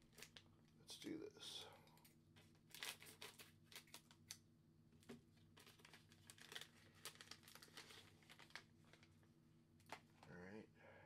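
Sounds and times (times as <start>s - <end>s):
wrapper crinkling: 0.0s - 0.5s, 2.0s - 4.4s, 5.4s - 10.3s.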